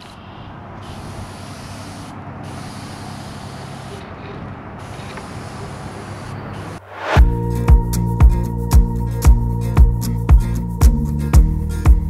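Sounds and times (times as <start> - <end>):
airbrush hissing: 0.0 - 4.1, 4.8 - 7.2.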